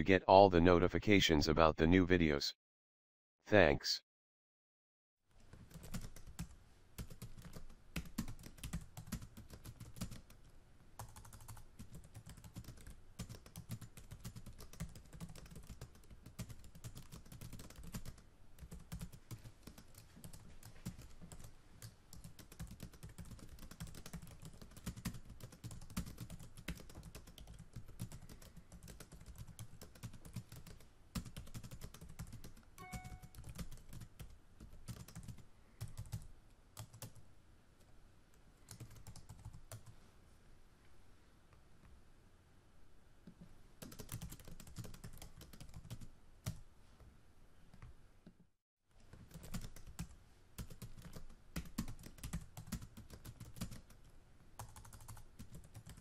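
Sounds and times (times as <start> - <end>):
keyboard typing: 5.6 - 10.4, 11.0 - 36.2, 36.8 - 37.2, 38.7 - 39.9, 43.8 - 46.6, 49.1 - 54.0, 54.6 - 56.0
short beep: 32.8 - 33.4.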